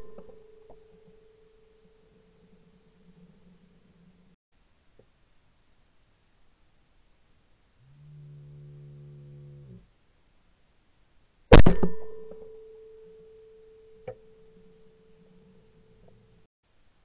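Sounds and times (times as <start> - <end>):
low steady hum: 0.0 - 17.0
shotgun shot: 11.5 - 12.4.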